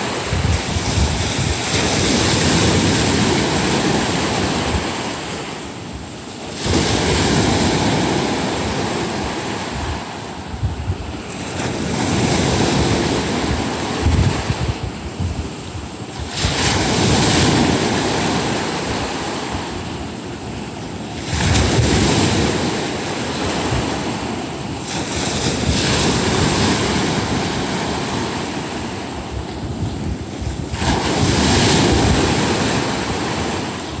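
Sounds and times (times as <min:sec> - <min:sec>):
sea waves breaking on shore: 0:00.0 - 0:34.0
wind rumbling on microphone: 0:00.0 - 0:34.0.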